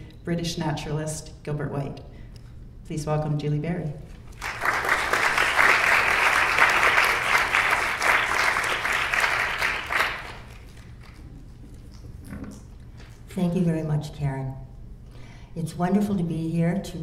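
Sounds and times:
audience applauding: 4.3s - 11.2s.

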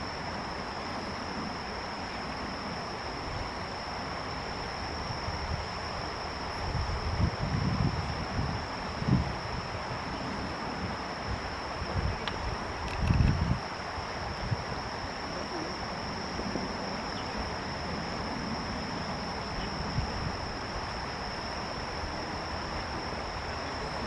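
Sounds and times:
insects trilling: 0.0s - 24.0s
rushing outdoor hiss: 0.0s - 24.0s.

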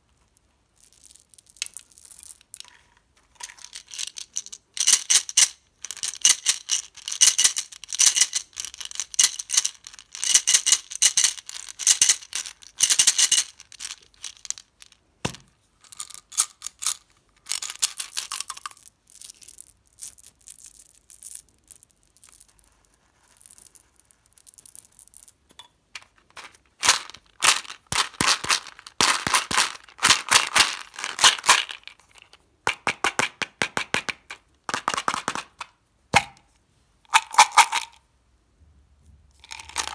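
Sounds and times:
candies rattling in plastic tube: 0.9s - 15.0s, 15.9s - 19.4s, 26.2s - 32.4s, 37.1s - 38.0s, 39.4s - 39.9s.

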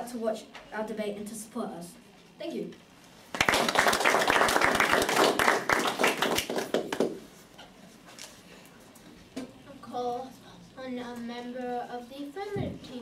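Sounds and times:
audience clapping: 3.3s - 7.3s.

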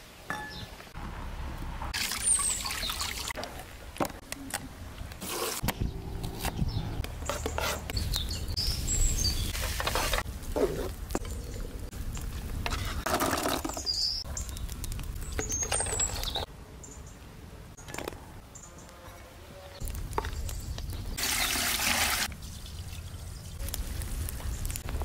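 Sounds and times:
small birds chirping: 5.7s - 9.6s, 11.2s - 12.4s, 13.6s - 17.9s, 19.6s - 21.6s.

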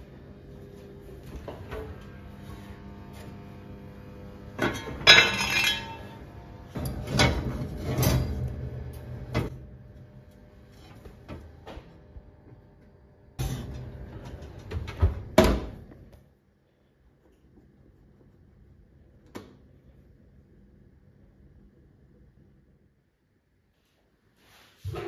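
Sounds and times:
oven fan humming: 0.0s - 23.2s
pot scraping on wire rack: 4.6s - 6.2s, 6.8s - 8.7s
oven door banging shut: 14.6s - 15.8s.

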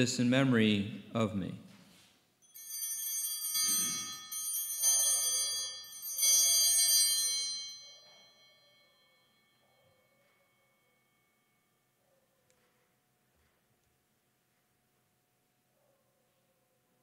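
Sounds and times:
altar bells ringing: 2.4s - 11.9s.

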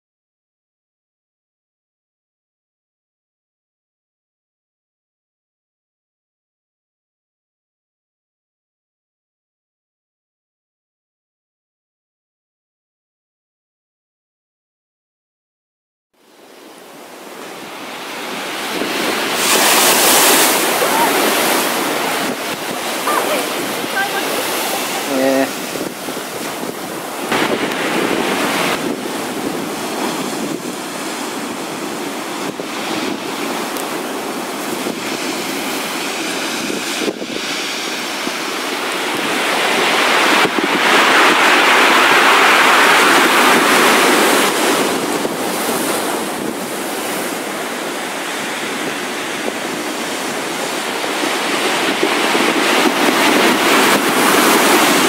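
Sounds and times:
waves crashing against stone wall: 16.4s - 55.0s
wind buffeting microphone: 16.9s - 55.0s.

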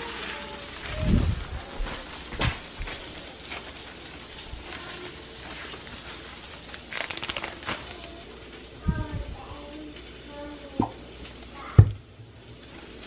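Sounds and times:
bag crinkling rattle: 0.0s - 8.5s
steady hiss: 0.0s - 13.0s.

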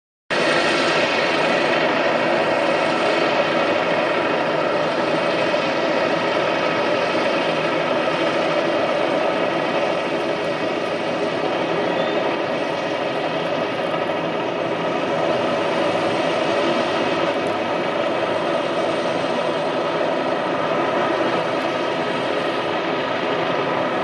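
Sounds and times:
helicopter engine and rotors: 0.3s - 24.0s.

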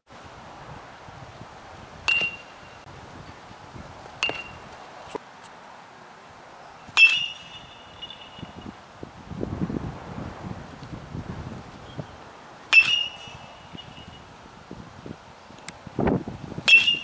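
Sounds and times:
baseball bat hitting ball: 2.1s - 2.6s, 4.2s - 4.6s, 6.9s - 8.6s, 12.7s - 14.1s, 16.6s - 17.0s.

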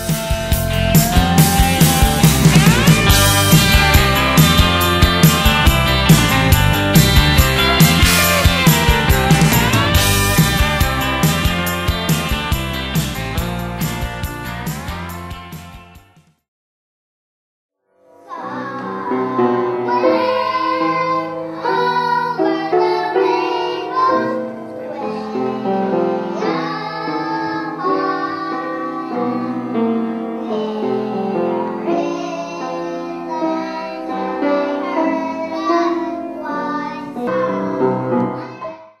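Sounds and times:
piano accompaniment: 0.0s - 16.2s, 17.9s - 39.0s
children singing: 18.2s - 39.0s.

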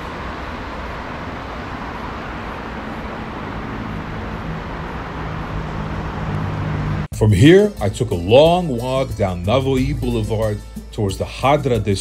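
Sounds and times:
vehicle engine hum: 0.0s - 7.2s
city street traffic: 0.0s - 12.0s.

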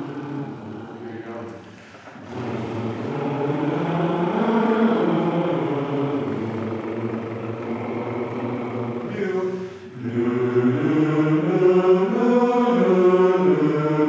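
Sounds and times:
men's chorus singing chords: 0.0s - 14.0s.

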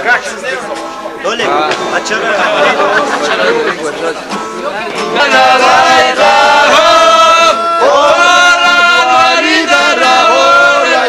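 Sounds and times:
acoustic guitar strumming: 0.0s - 11.0s
chatter: 0.0s - 11.0s
men singing together: 2.1s - 3.7s, 5.1s - 11.0s.

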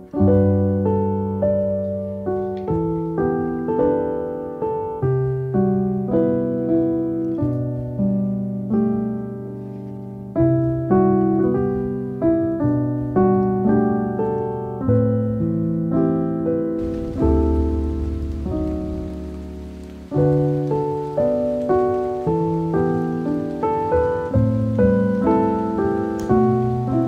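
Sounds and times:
soft piano chords: 0.0s - 27.0s
rain hiss: 16.8s - 27.0s.

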